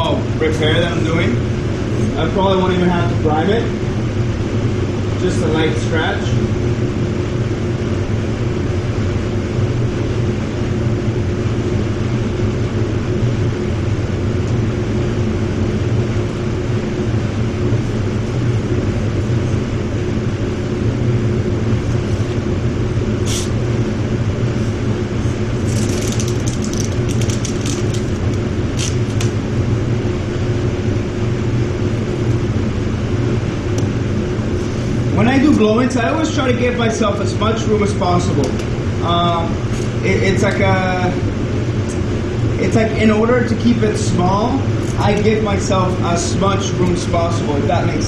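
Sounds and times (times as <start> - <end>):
ventilation fans drone: 0.0 - 48.0
masking tape pulled off roll: 25.6 - 29.4.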